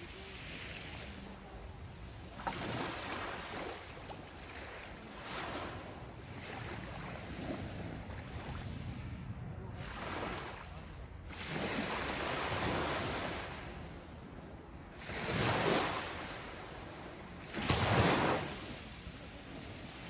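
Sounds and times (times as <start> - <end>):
waves washing on pebble beach: 17.4 - 20.0.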